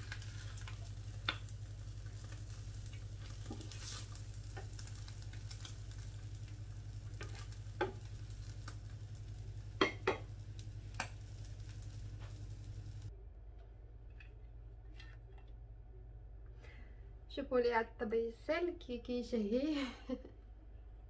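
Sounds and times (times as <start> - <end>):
meat sizzling in a frying pan: 0.0 - 13.1
steady low hum: 0.0 - 18.8
wooden spatulas scraping a pan: 3.2 - 4.8
wood knocking on a pan: 7.2 - 8.1, 9.8 - 10.3.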